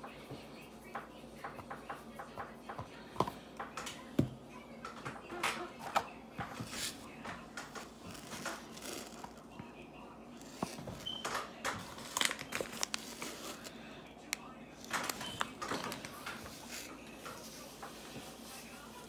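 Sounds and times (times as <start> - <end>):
kitchen clicks and taps: 0.0 - 8.6.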